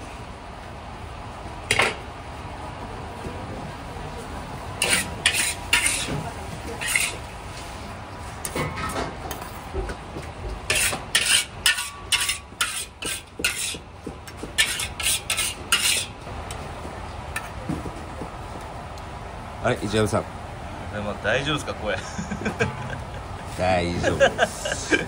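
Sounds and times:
utensil scraping cookware: 4.8s - 7.3s, 10.7s - 16.2s.

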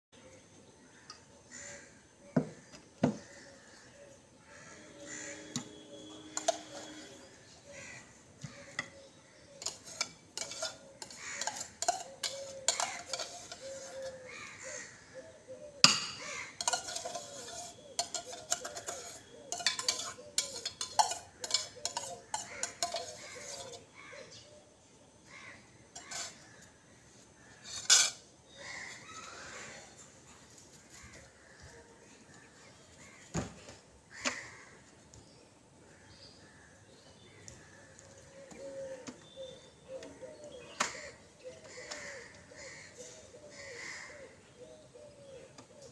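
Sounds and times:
spoon clinking against steel bowl: 5.4s - 7.2s, 9.6s - 14.0s, 16.6s - 23.8s.

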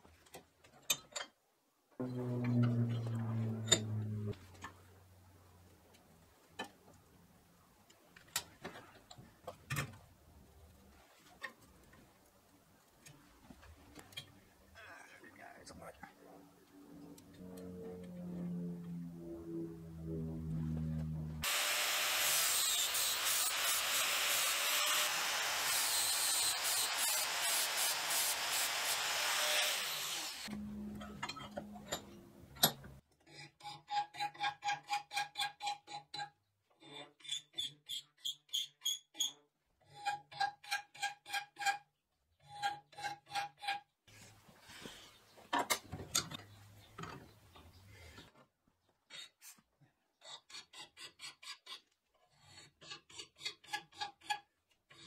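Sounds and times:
steel scraping by hand: 2.0s - 4.4s.

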